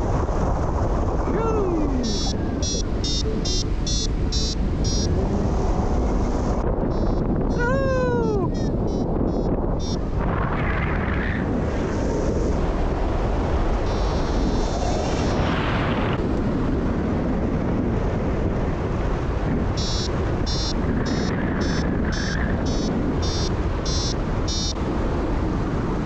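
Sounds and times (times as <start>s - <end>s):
wind rushing over microphone: 0.0s - 26.0s
variometer beeping quick pulses: 1.8s - 5.2s, 6.9s - 7.3s, 8.5s - 10.0s, 13.9s - 14.5s, 19.8s - 24.8s.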